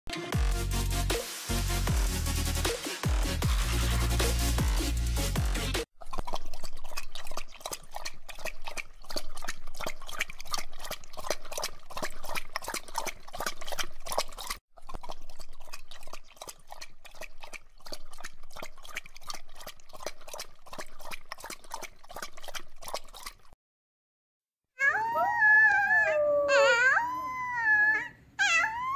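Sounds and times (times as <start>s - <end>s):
dog lapping liquid: 5.9s - 23.6s.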